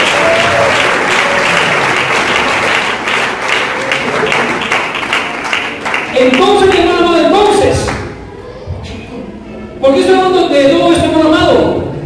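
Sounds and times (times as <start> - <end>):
congregation applauding: 0.0 - 8.1.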